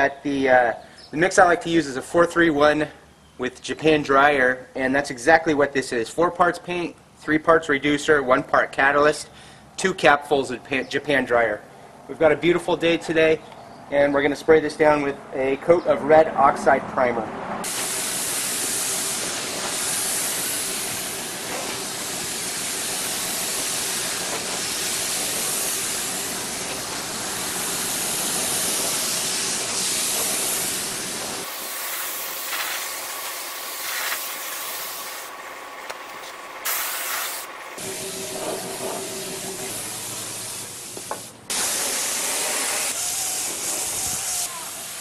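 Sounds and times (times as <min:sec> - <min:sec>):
spray gun hissing: 0:17.6 - 0:35.4, 0:36.2 - 0:45.0.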